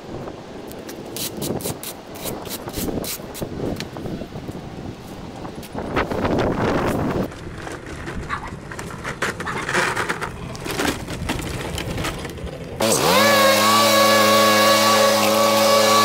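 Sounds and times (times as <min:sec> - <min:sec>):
knocking and rustling debris: 0:07.0 - 0:12.8
small engine running: 0:12.8 - 0:16.0.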